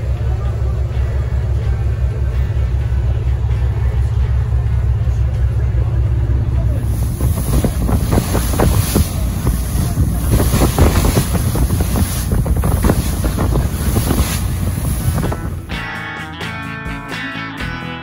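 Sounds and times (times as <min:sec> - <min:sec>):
water rushing along boat hull: 0:00.0 - 0:15.7
wind buffeting microphone: 0:06.8 - 0:15.7.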